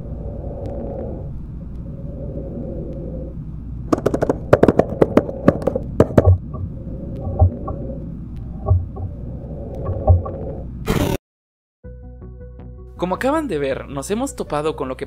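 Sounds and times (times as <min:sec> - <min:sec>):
low rumbling drone: 0:00.0 - 0:10.9
deep thuds: 0:03.9 - 0:07.8, 0:08.6 - 0:09.1, 0:09.8 - 0:10.5.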